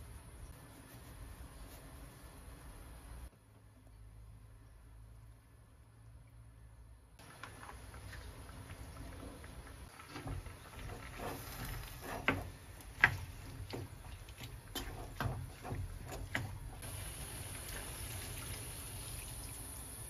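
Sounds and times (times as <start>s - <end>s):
spatula scraping frying pan: 10.0s - 16.8s
water pouring into pan: 16.8s - 20.0s.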